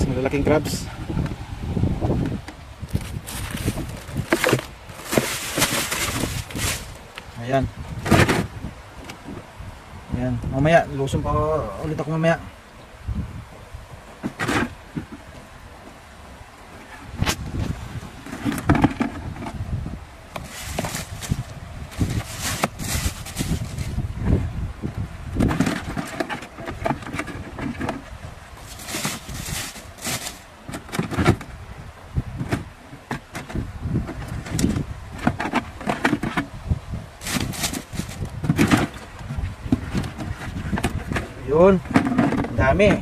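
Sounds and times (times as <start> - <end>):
handling knocks and scrapes: 2.1 - 9.5, 14.2 - 15.5, 16.7 - 19.7, 20.3 - 24.4, 25.3 - 31.6, 32.3 - 43.0.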